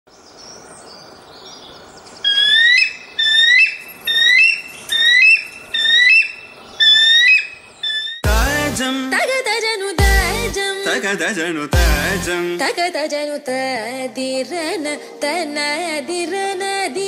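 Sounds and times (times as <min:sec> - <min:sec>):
faint high bird chirping: 0:00.1 - 0:08.2
rising whistled bird call: 0:02.2 - 0:08.2.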